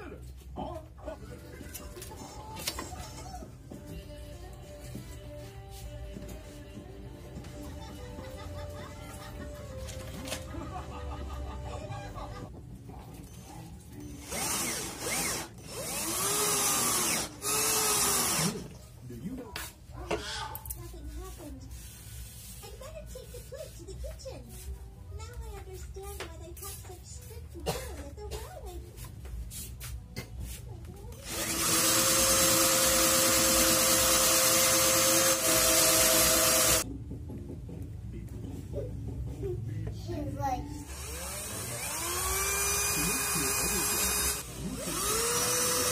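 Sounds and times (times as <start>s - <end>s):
cordless drill drilling into shell: 14.2s - 18.6s, 31.2s - 36.8s, 40.9s - 45.9s.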